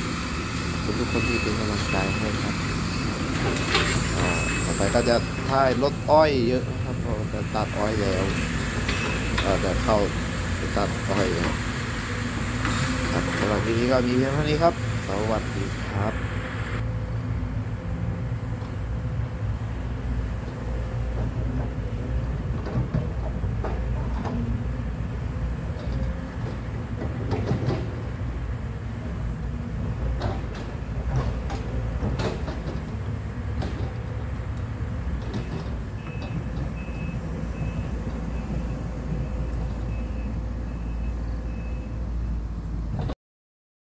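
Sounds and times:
excavator diesel engine running: 0.0 - 43.1
excavator clanks and knocks: 1.1 - 11.9, 12.5 - 15.4, 20.4 - 40.0, 42.8 - 43.2.

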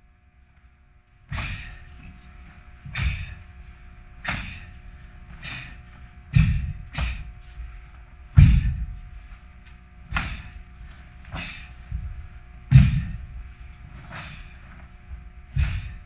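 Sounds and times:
feet thudding on floor: 8.3 - 9.4, 10.1 - 16.0
sharp burst of breath: 11.3 - 11.8, 14.1 - 14.6.

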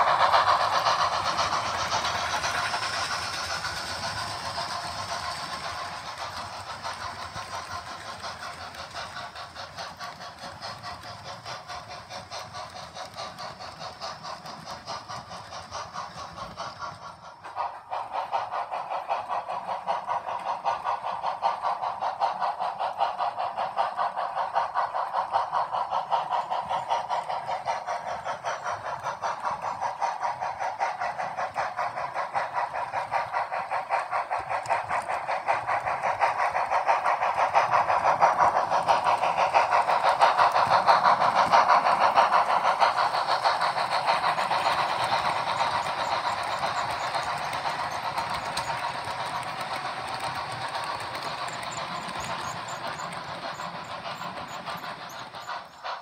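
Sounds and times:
model steam locomotives running: 0.0 - 56.0.

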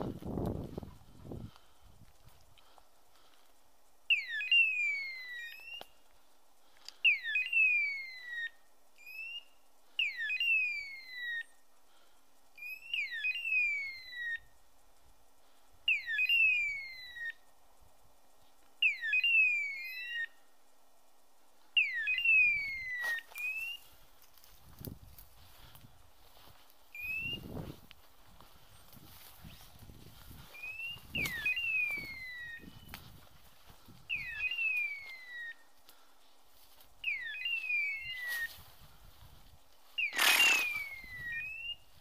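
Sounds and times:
electronic hawk-scream call: 4.1 - 5.9, 7.0 - 11.6, 12.6 - 14.5, 15.9 - 17.5, 18.8 - 20.4, 21.8 - 23.9, 30.5 - 33.0, 34.1 - 35.6, 37.0 - 38.7, 40.0 - 41.9.

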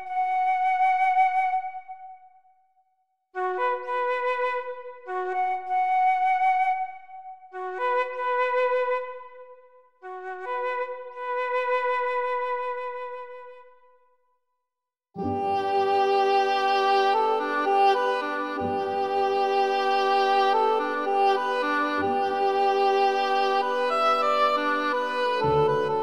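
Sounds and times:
slow wind instrument melody: 15.2 - 26.0.

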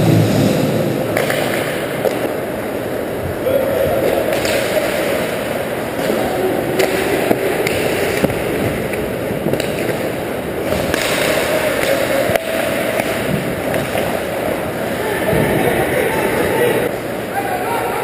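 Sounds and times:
hockey sticks and puck clacking: 1.1 - 2.6, 4.0 - 15.8.

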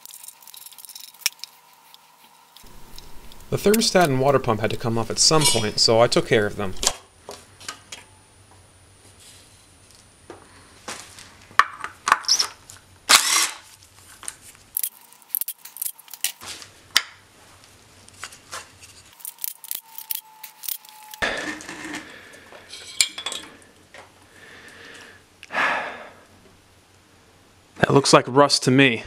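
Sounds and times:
scraping handling noise: 0.0 - 6.0, 18.0 - 23.6
hand tools clinking on metal: 5.3 - 5.9, 22.7 - 23.6.

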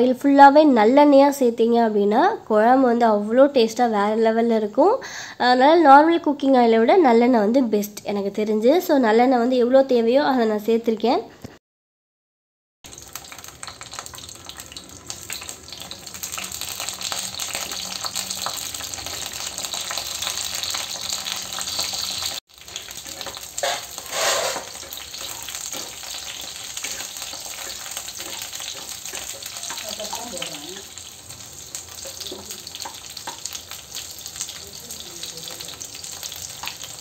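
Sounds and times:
eggplant sizzling in hot oil: 12.9 - 37.0
wooden spatula stirring: 21.7 - 31.0.

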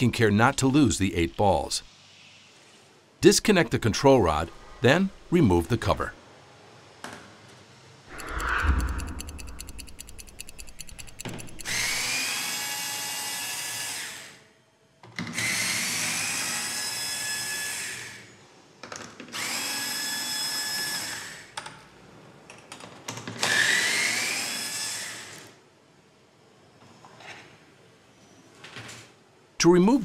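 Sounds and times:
rapid even ticking: 8.1 - 12.0
electric screwdriver motor whine: 9.4 - 12.4.

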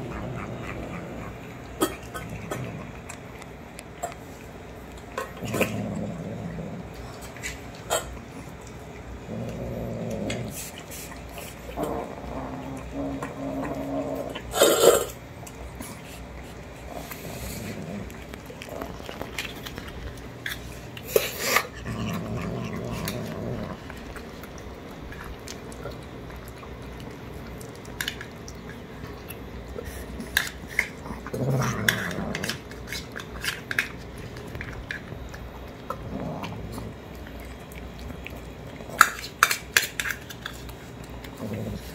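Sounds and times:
cat growling: 0.0 - 3.2, 5.4 - 7.1, 9.2 - 10.7, 11.7 - 15.2, 16.8 - 19.4, 21.4 - 24.3, 30.9 - 32.7, 35.8 - 37.1
kittens chewing and licking: 0.0 - 41.9.

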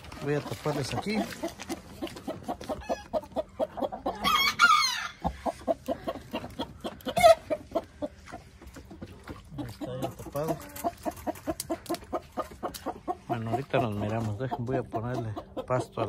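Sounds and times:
chickens clucking: 0.0 - 16.0
chicken squawk: 1.1 - 8.4.

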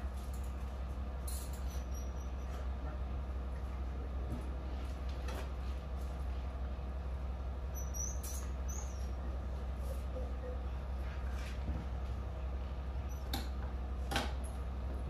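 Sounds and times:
truck engine idling: 0.0 - 15.0
short high squeaks: 1.4 - 2.7, 7.7 - 9.2.

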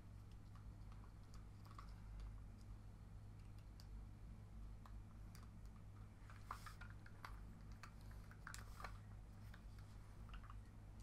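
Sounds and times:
low steady hum: 0.0 - 11.0
plastic clicks and scrapes: 4.8 - 10.7.

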